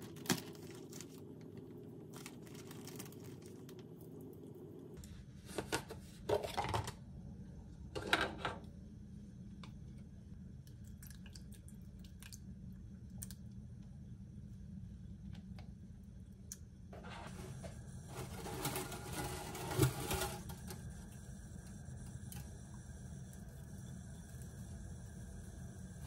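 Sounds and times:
low steady hum: 0.0 - 26.0
plastic bag crinkling: 2.1 - 3.9.

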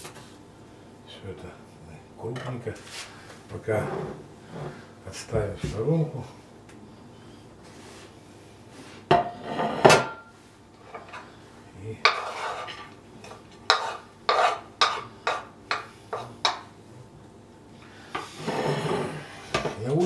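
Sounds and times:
knife scraping cutting board: 12.0 - 16.3, 18.2 - 19.8.

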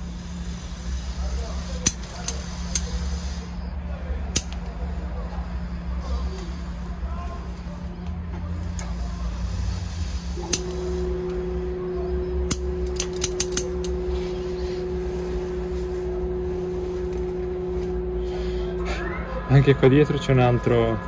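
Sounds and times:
steady low hum: 0.0 - 21.0
steady tone: 7.5 - 21.0
scissors snipping twigs: 12.5 - 13.7.

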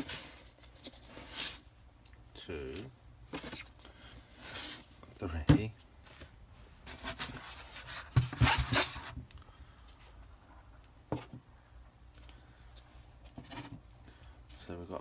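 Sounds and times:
rustling of packing stuffing: 0.0 - 1.8, 2.6 - 10.2.

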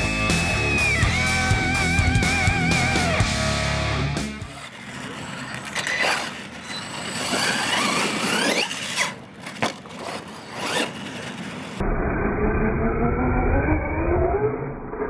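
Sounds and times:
electric motor whining: 4.3 - 9.2.

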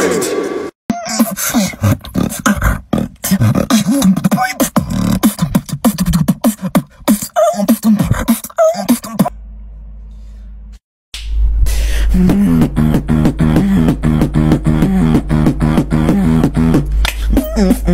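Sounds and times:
person beatboxing: 0.9 - 9.3, 12.1 - 17.9
hummed gliding bass line: 9.3 - 17.9.

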